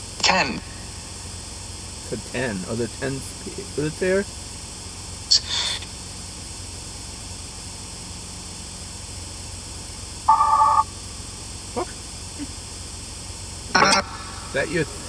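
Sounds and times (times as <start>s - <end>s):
radio sweep hiss: 0.0s - 4.3s, 10.3s - 10.9s, 13.6s - 15.0s
short musical tones: 10.3s - 10.8s.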